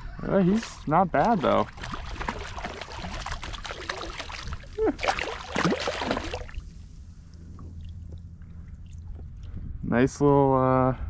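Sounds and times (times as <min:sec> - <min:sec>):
fish thrashing and splashing: 0:00.4 - 0:07.0.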